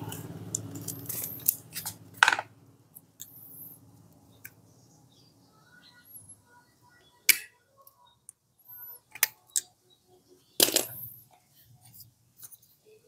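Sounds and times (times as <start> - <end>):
small metal parts clicking: 0.1 - 3.4.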